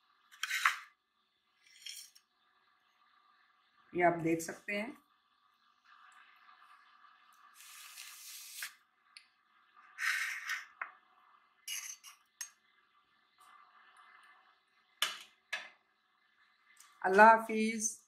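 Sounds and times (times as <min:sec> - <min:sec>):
plate and metal pan scraping: 0:00.4 - 0:00.9, 0:01.6 - 0:02.2, 0:10.0 - 0:10.8, 0:11.7 - 0:12.2
dishes clicking and clinking: 0:11.7 - 0:12.6.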